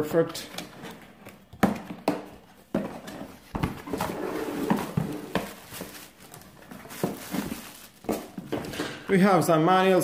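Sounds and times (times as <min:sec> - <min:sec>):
packaging rustling: 0:02.6 - 0:08.9.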